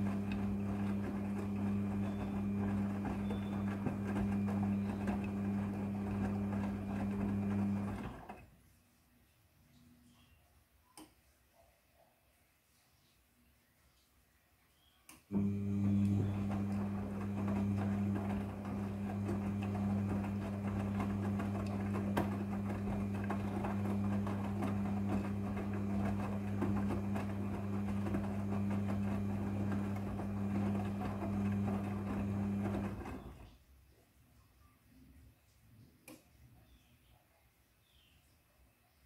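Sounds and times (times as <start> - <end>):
washing machine drum turning: 0.0 - 8.3, 15.4 - 33.3.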